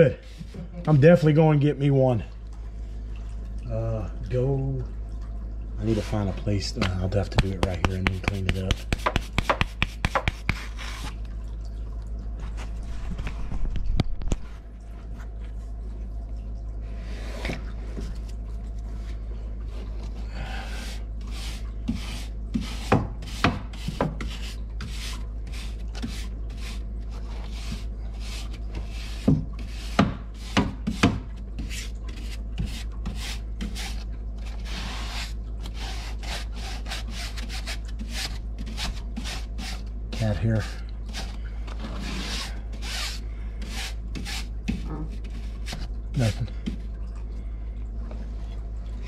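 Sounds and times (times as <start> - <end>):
brush scrubbing metal fins: 5.8 - 11.2, 20.5 - 46.9.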